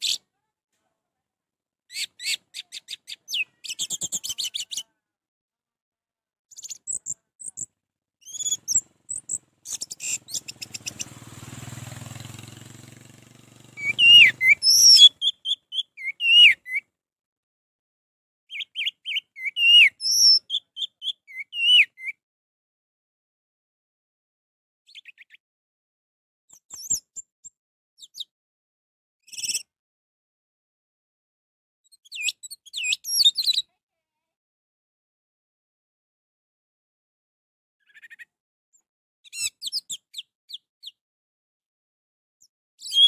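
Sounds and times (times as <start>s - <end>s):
thrush singing: 9.1s - 15.2s.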